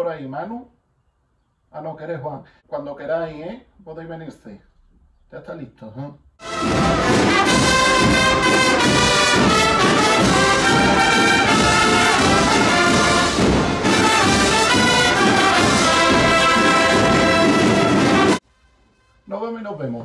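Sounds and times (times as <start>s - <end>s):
brass band playing march: 6.4s - 18.4s.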